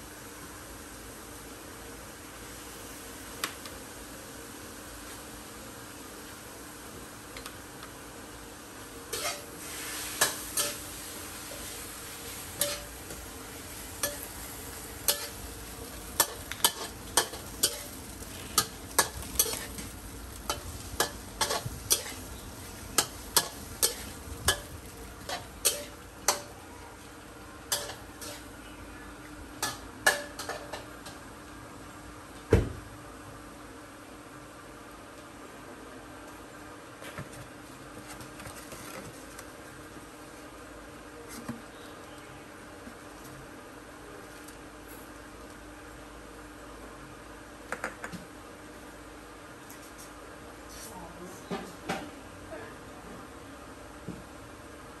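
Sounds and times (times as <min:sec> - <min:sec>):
food sizzling: 0:00.1 - 0:31.1
metal spatula scraping a wok: 0:09.1 - 0:10.9, 0:12.6 - 0:13.0, 0:16.2 - 0:19.8, 0:20.5 - 0:24.7, 0:25.3 - 0:26.5, 0:27.7 - 0:28.5.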